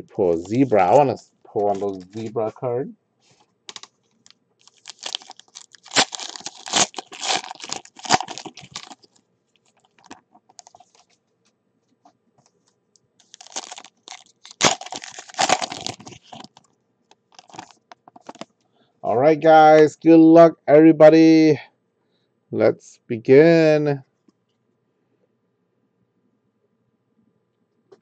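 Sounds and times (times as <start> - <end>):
foil wrapper crinkling and tearing: 0.3 - 2.4, 3.7 - 11.0, 13.2 - 18.5.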